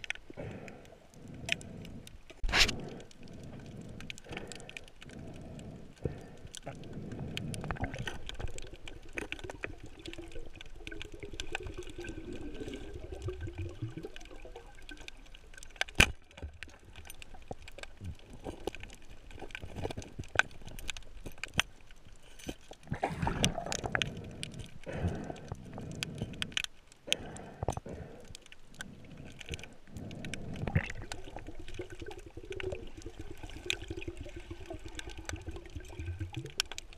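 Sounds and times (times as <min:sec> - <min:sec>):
water rushing underwater: 0:00.0 - 0:21.8, 0:22.7 - 0:36.9
crackling clicks: 0:00.0 - 0:36.9
rustling and scraping: 0:02.3 - 0:03.0.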